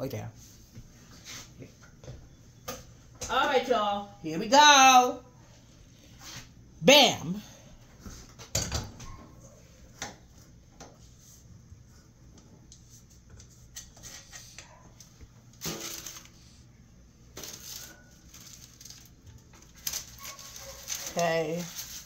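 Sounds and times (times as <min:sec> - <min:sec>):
parchment paper rustling on metal: 0:15.4 - 0:16.6, 0:17.3 - 0:22.0.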